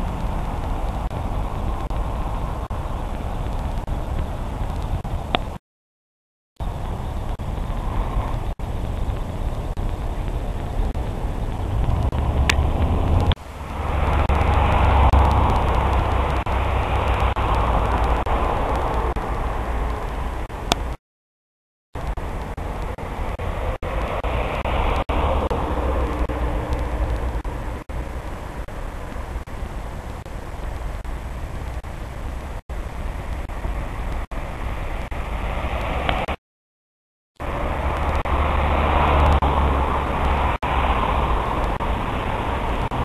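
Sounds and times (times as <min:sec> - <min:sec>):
road traffic rumble: 0:00.0 - 0:05.6, 0:06.6 - 0:21.0, 0:22.0 - 0:36.4, 0:37.4 - 0:43.0
vehicle passing: 0:11.0 - 0:20.6, 0:22.5 - 0:28.7, 0:37.4 - 0:43.0.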